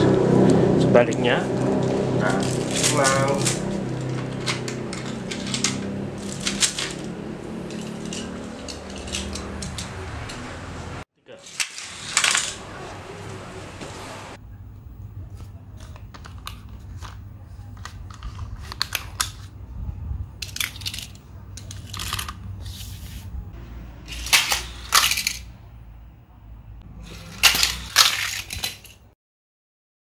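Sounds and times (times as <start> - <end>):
low steady hum: 0.0 - 11.0, 12.6 - 29.1
plastic toy clicks and clacks: 4.4 - 7.1, 7.7 - 10.0, 27.1 - 29.0.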